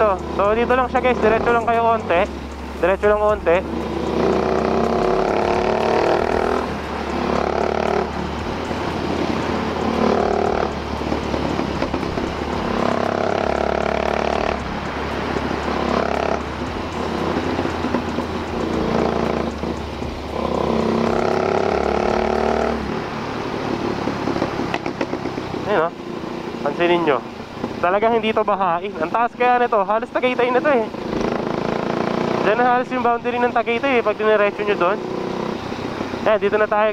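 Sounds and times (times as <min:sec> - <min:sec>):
motorcycle engine running: 0:00.0 - 0:36.9.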